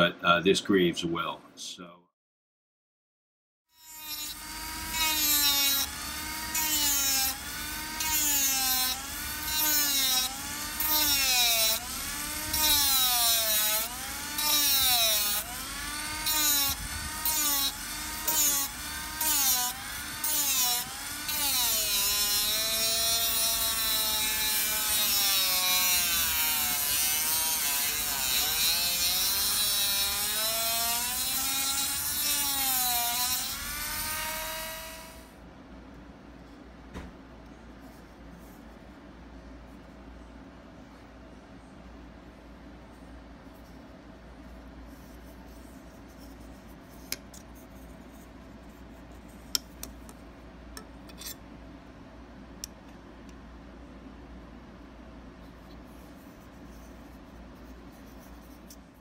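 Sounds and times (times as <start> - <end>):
rotary tool motor whine: 3.8 - 35.3.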